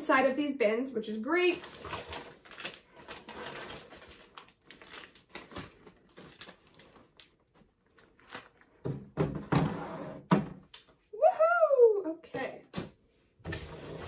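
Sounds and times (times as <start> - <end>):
plastic packets crinkling: 1.4 - 8.9.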